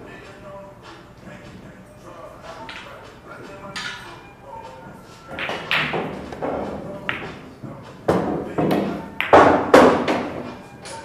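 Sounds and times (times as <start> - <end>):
billiard balls clacking: 2.4 - 11.0
cue striking ball: 2.5 - 4.2, 5.3 - 11.0.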